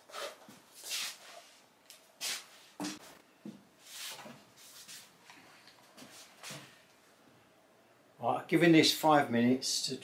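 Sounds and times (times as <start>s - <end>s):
rustles and scuffs: 0.1s - 6.8s.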